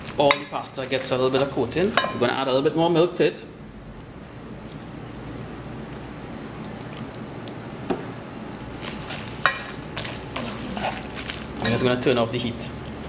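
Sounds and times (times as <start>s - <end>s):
sauce bubbling in a pot: 0.0s - 2.3s, 3.9s - 11.7s.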